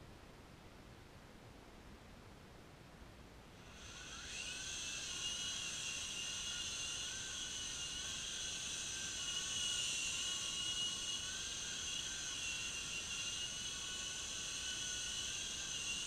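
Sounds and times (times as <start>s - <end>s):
remote-control helicopter whine: 3.6s - 16.0s.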